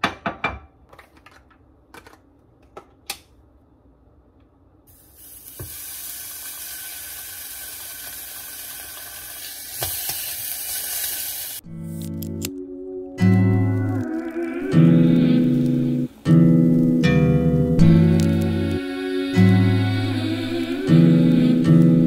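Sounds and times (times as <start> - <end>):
meat sizzling in a saucepan: 4.9 - 11.6.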